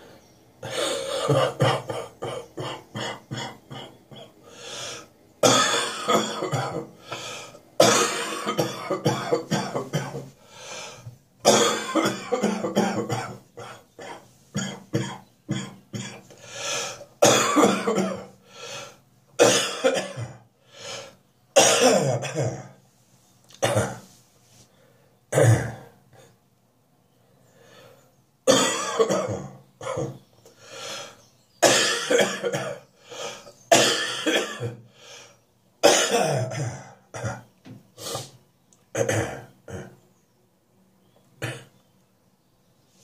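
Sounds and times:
person coughing: 0.6s - 4.4s, 5.4s - 7.0s, 7.8s - 10.3s, 11.4s - 16.2s, 17.2s - 18.3s, 19.4s - 20.4s, 21.6s - 22.7s, 23.6s - 24.1s, 25.3s - 25.9s, 28.5s - 30.2s, 31.6s - 32.8s, 33.7s - 34.8s, 35.8s - 37.5s, 39.0s - 40.0s.

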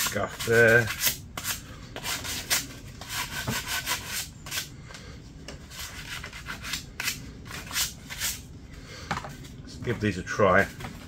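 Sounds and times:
sandpaper scratching paint: 0.0s - 4.7s.

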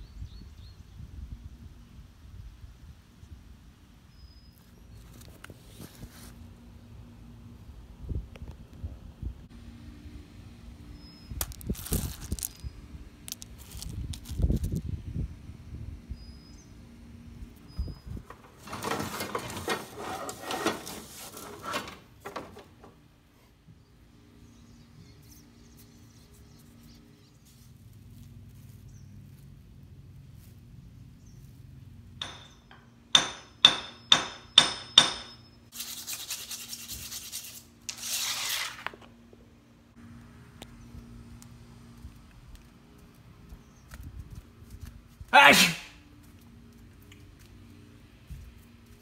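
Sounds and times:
sharp ringing stone clinks: 32.2s - 35.6s.

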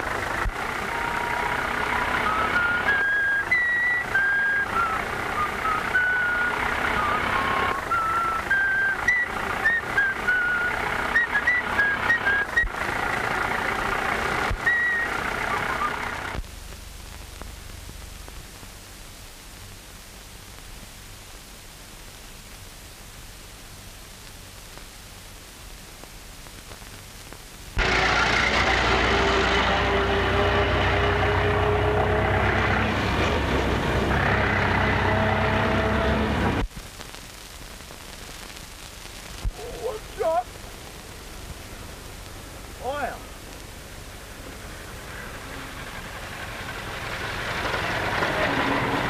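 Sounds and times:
truck engine running: 0.0s - 18.3s, 27.8s - 36.6s, 39.5s - 49.0s
quiet steady hum: 0.0s - 49.0s
man whistling a tune: 2.2s - 12.7s, 14.6s - 16.0s.

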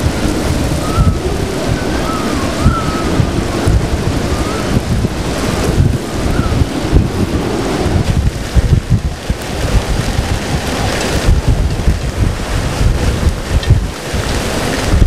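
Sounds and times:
waves breaking: 0.0s - 15.0s
wind buffeting microphone: 0.0s - 15.0s.

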